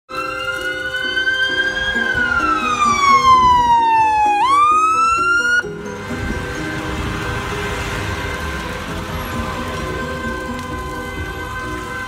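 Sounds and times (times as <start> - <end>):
electronic siren wailing: 0.1 - 6.4.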